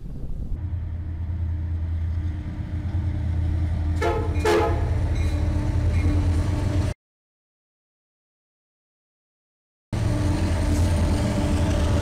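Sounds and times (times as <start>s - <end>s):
diesel locomotives rumbling: 0.0s - 7.0s, 10.0s - 12.0s
train horn blasts: 3.8s - 5.3s.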